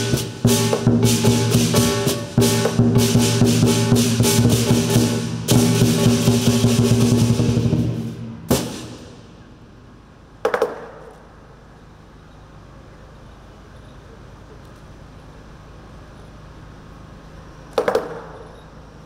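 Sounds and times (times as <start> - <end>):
drum gong and cymbals: 0.0 - 9.8
low hall background: 0.0 - 19.0.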